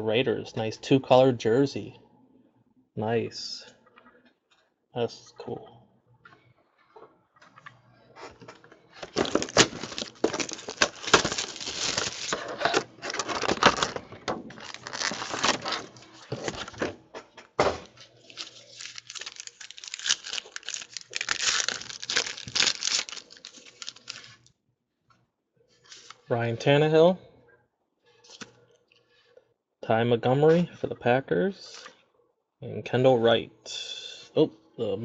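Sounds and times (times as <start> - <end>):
foil wrappers crinkling and tearing: 9.0 - 16.9, 18.0 - 24.5.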